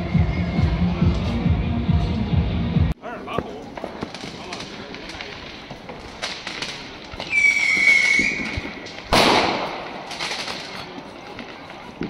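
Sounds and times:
fireworks crackling pops: 0:03.2 - 0:12.0
whistling firework: 0:06.0 - 0:12.0
loud firework bang: 0:06.2 - 0:10.7.

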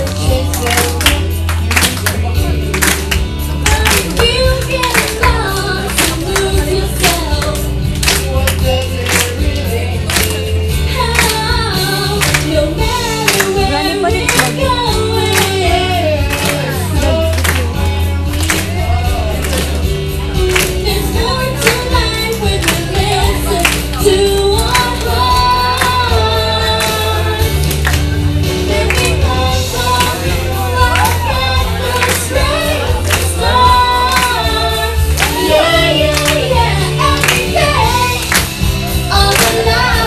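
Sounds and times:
pop accompaniment with beat and bass: 0:00.0 - 0:40.0
man and woman singing duet: 0:03.6 - 0:27.6, 0:28.5 - 0:40.0.

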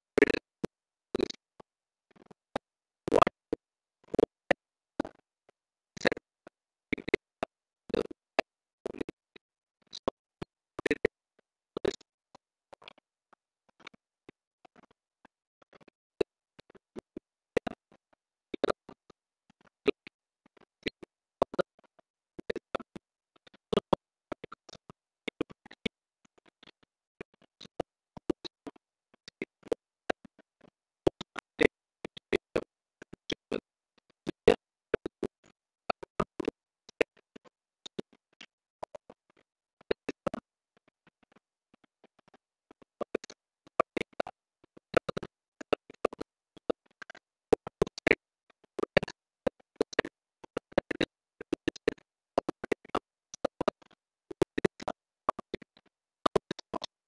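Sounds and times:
sharp clicks and taps: 0:49.8 - 0:55.7.

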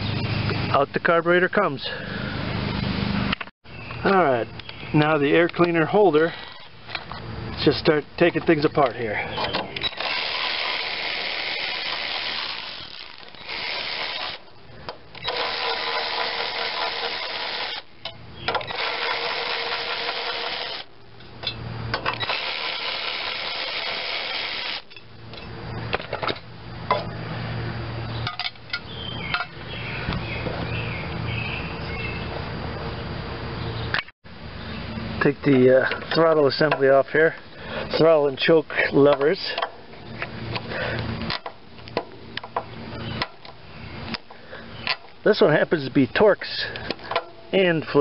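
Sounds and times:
power drill spinning: 0:06.1 - 0:06.8, 0:09.8 - 0:14.5, 0:15.1 - 0:17.9, 0:18.6 - 0:20.9, 0:22.1 - 0:24.9.

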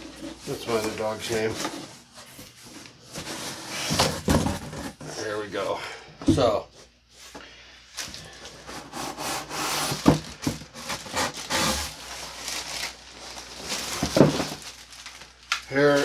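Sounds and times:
cardboard scraping and rustling: 0:00.0 - 0:05.2, 0:08.0 - 0:15.2.

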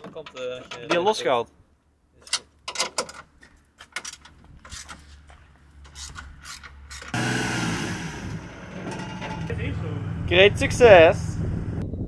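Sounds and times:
vehicle hum: 0:05.6 - 0:11.9.

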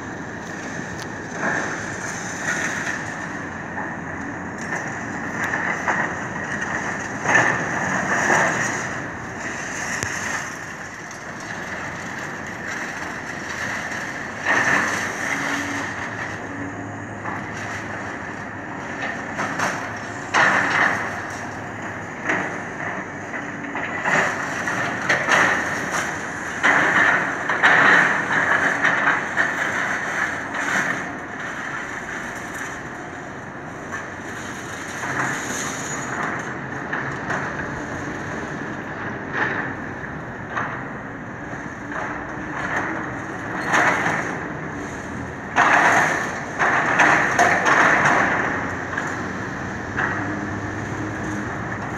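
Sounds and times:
excavator diesel engine running: 0:00.0 - 0:51.9
masonry crunching and clattering: 0:41.8 - 0:51.9.

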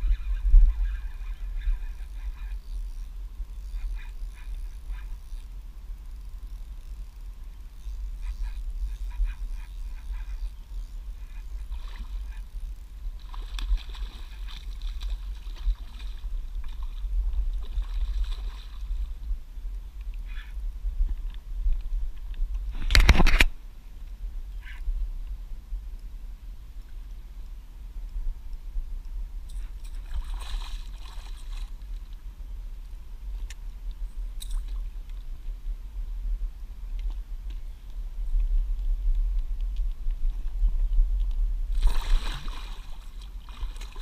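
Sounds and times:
fish thrashing and splashing: 0:13.2 - 0:17.0, 0:41.8 - 0:44.0
fish splashing in water: 0:41.8 - 0:44.0.

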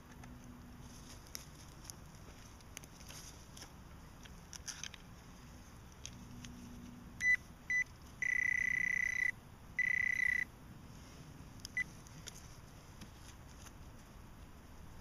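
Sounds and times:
metal detector beeps: 0:07.2 - 0:10.5, 0:11.7 - 0:11.9.

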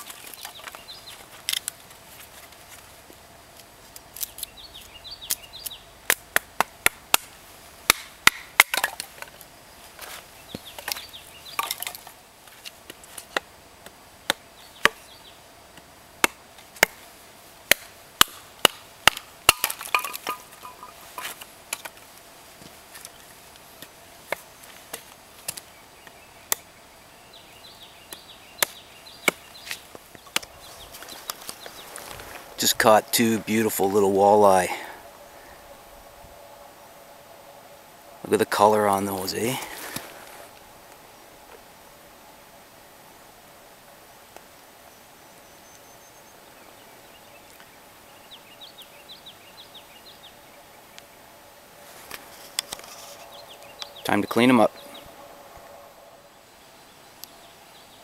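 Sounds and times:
hatchet chopping firewood: 0:04.2 - 0:09.3, 0:13.2 - 0:15.1, 0:15.7 - 0:17.0, 0:17.7 - 0:22.0, 0:28.1 - 0:31.8.

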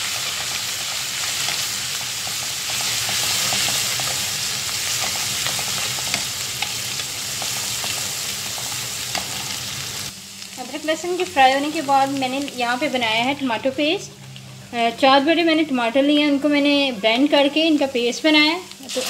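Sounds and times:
paste sizzling in hot oil: 0:00.0 - 0:13.5, 0:18.6 - 0:19.0.

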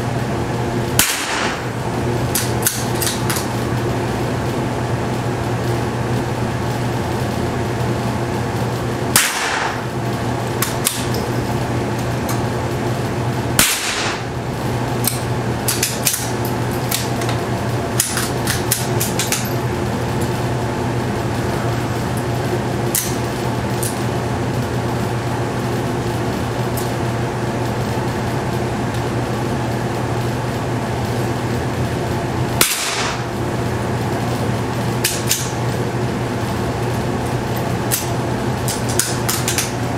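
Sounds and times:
low fan hum: 0:00.0 - 0:39.9
rifle shots: 0:01.0 - 0:01.7, 0:09.2 - 0:09.8, 0:13.6 - 0:14.3, 0:32.6 - 0:33.2.

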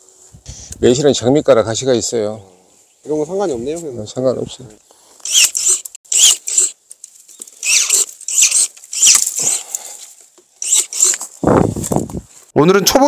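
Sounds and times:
branches rustling and scraping: 0:00.0 - 0:00.6, 0:02.7 - 0:12.6.

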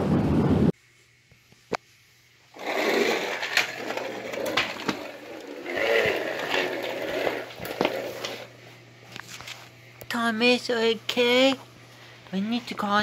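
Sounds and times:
toy wheels rolling on wooden floor: 0:02.6 - 0:08.5.

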